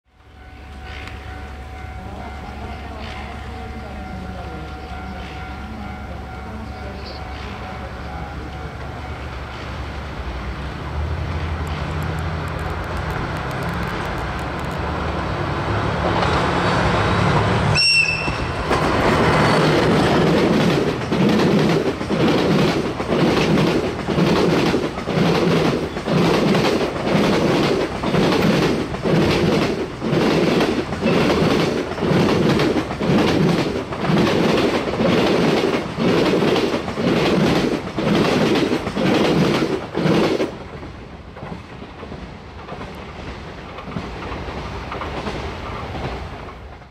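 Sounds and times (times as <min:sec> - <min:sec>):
diesel locomotive engine: 0:00.1 - 0:46.9
locomotive horn blast: 0:17.7 - 0:18.6
train wheels clattering over rail joints: 0:18.3 - 0:46.9.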